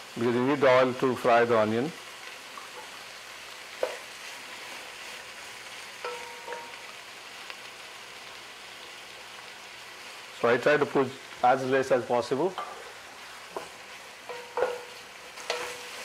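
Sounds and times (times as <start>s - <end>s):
onions sizzling in hot oil: 0.0s - 16.0s
utensil knocking against pan: 14.3s - 14.9s.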